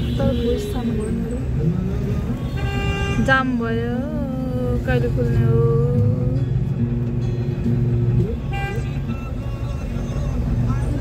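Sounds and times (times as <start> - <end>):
vehicle idling: 3.2 - 11.0
plucked guitar music: 3.3 - 11.0.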